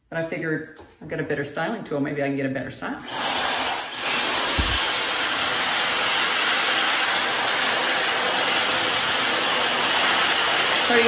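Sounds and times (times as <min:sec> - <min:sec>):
hair dryer blowing: 0:03.0 - 0:11.0.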